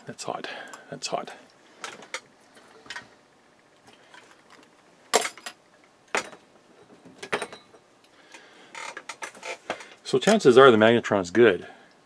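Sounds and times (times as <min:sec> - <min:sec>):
metal parts clicking and clunking: 0:03.9 - 0:10.5.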